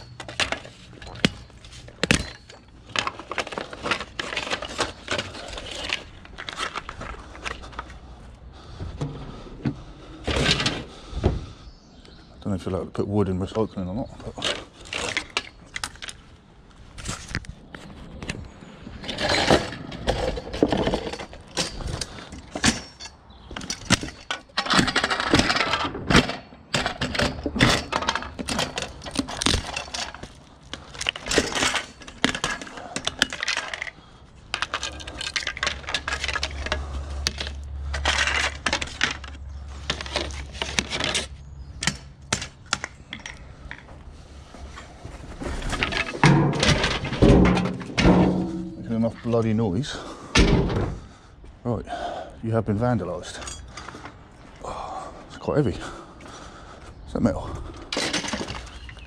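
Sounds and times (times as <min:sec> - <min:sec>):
wooden slats clattering: 0:08.6 - 0:11.5, 0:19.0 - 0:34.0, 0:45.4 - 0:51.2, 0:57.8 - 0:59.0
metal bed frame rattling: 0:45.7 - 0:49.2.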